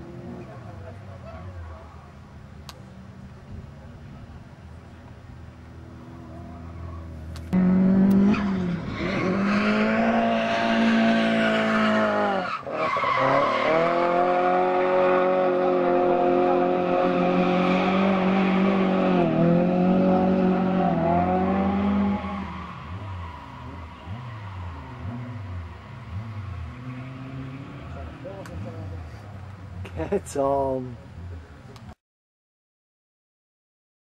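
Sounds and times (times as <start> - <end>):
car engine revving high: 7.5 - 28.9.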